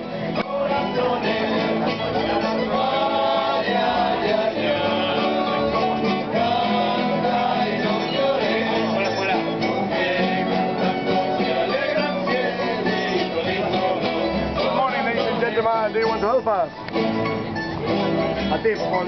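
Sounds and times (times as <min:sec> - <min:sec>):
voices singing along: 0:00.0 - 0:16.2
acoustic guitars strummed and plucked: 0:00.0 - 0:19.0.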